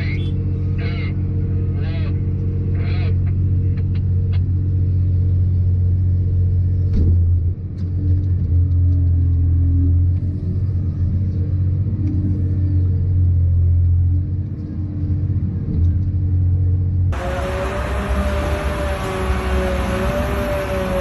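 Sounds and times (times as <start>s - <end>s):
diesel engine droning under load: 0.0s - 21.0s.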